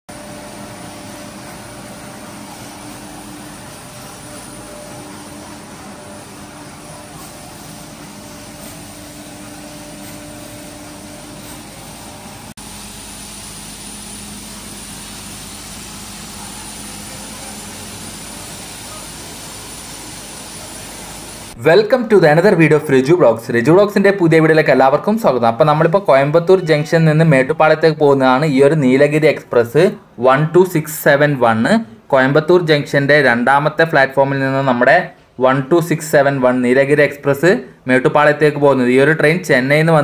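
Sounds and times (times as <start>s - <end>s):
train rushing noise: 0.2s - 12.6s.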